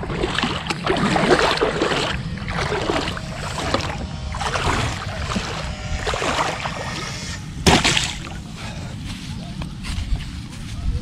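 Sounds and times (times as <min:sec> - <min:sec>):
water splashing and sloshing: 0:00.0 - 0:08.7.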